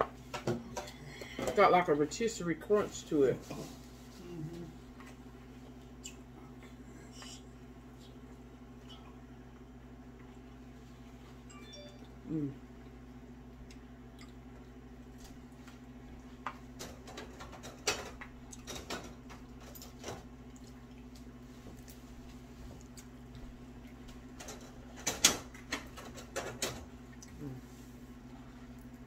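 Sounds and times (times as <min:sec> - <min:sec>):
steady low hum: 0:00.0 - 0:29.0
chewing: 0:13.6 - 0:14.8, 0:20.4 - 0:22.1.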